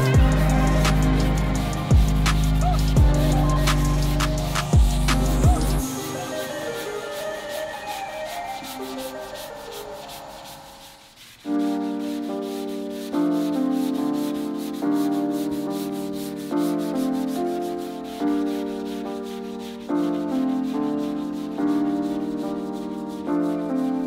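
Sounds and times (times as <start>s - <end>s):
keyboard chords: 0.0s - 7.2s
hand sanding body filler: 0.0s - 24.0s.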